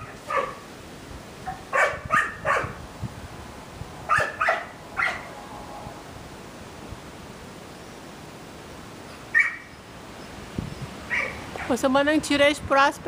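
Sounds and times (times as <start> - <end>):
dog barking: 0.0 - 0.6, 1.4 - 2.8, 4.1 - 5.3, 9.3 - 9.7, 11.1 - 11.8.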